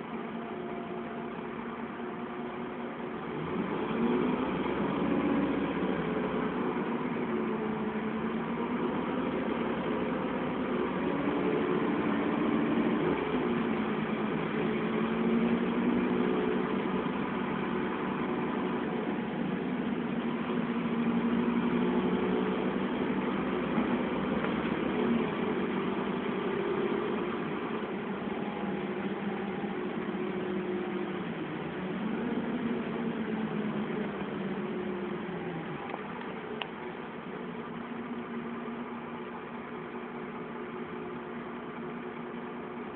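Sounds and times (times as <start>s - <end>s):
bus diesel engine running: 0.0s - 42.9s.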